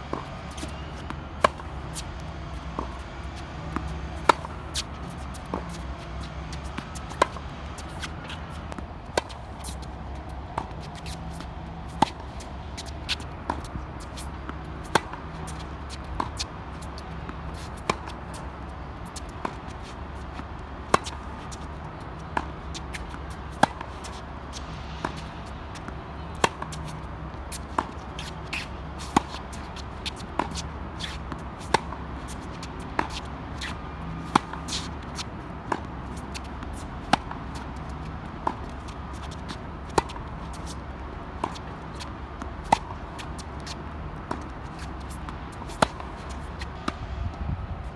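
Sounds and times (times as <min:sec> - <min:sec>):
tennis balls struck by racquets: 0:00.0 - 0:47.2.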